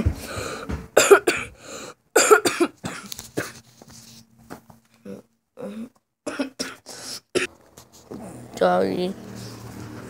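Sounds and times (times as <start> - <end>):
person coughing: 1.0 - 1.6, 2.2 - 3.6, 5.1 - 7.5.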